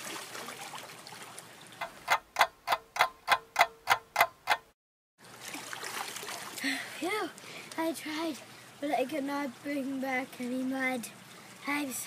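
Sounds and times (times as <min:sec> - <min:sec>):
creek water running: 0:00.0 - 0:03.4, 0:05.2 - 0:12.0
clock ticking: 0:01.8 - 0:04.7.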